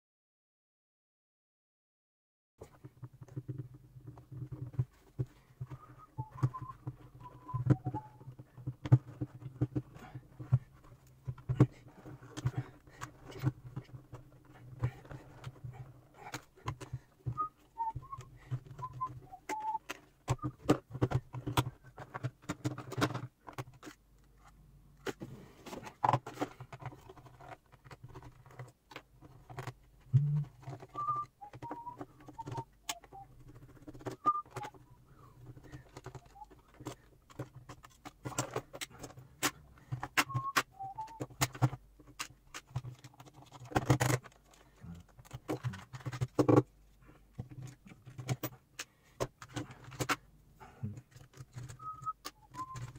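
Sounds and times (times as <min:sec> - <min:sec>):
plastic case clicks and knocks: 0:35.4 - 0:46.8.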